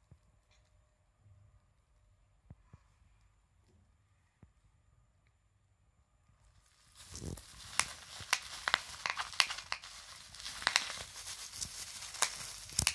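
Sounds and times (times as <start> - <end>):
bubble wrap crinkling and crackling: 6.7 - 12.9.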